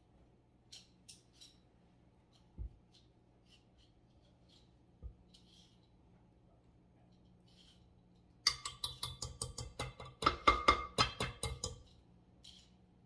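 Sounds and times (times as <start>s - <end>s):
utensil knocking on mixing bowl: 8.5s - 11.7s.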